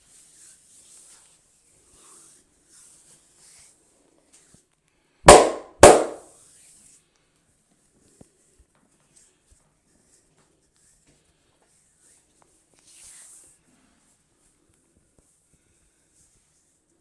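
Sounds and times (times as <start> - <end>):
hands rubbing hair and skin: 0.0 - 4.5, 10.0 - 16.9
hands smacking head: 5.3 - 6.3.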